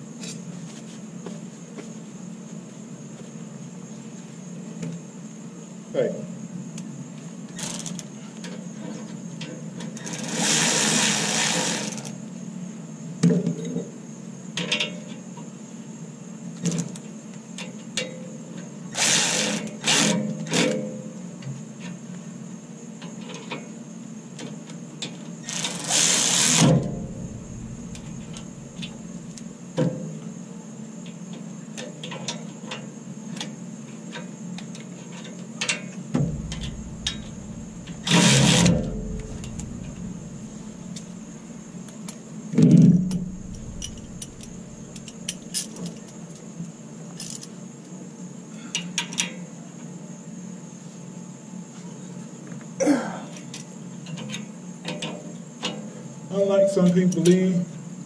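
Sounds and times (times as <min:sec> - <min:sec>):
electric ratchet whirring: 0:10.0 - 0:12.1, 0:19.0 - 0:20.2, 0:25.5 - 0:29.4, 0:36.2 - 0:41.4, 0:43.1 - 0:45.3.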